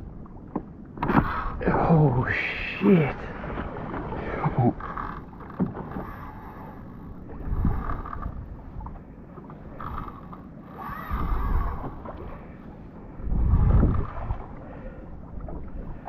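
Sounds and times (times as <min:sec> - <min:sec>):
water against kayak hull: 0:00.0 - 0:16.0
fishing reel whirring: 0:05.9 - 0:08.4, 0:09.8 - 0:12.0
wind buffeting microphone: 0:07.3 - 0:09.0, 0:10.8 - 0:12.2, 0:13.1 - 0:14.6.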